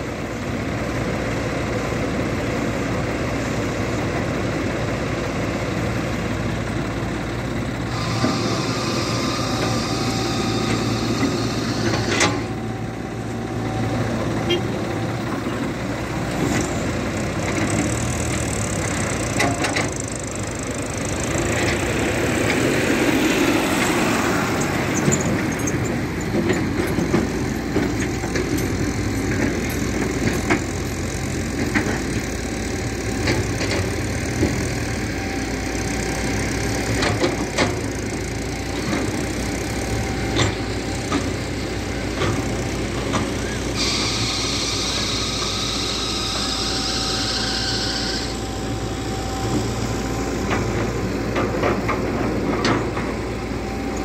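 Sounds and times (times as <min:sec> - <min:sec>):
excavator engine running: 0:00.0 - 0:54.0
tractor engine running: 0:00.0 - 0:54.0
hiss: 0:43.8 - 0:48.4.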